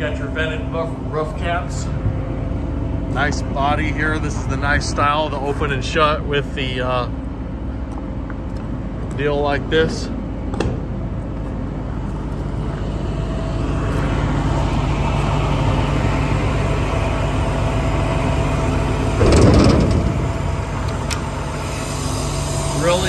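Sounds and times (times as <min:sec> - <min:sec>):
diesel truck engine idling: 0:00.0 - 0:23.0.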